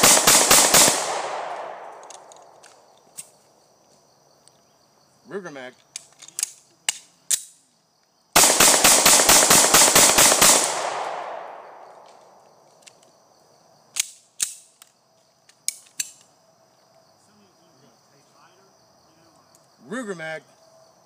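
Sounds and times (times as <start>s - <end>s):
pistol shots in rapid string: 0.0s - 1.8s, 8.4s - 11.5s
gunshot echo: 0.0s - 2.0s, 8.4s - 11.8s
pistol handling clicks: 1.4s - 3.3s, 5.9s - 7.6s, 14.0s - 16.3s.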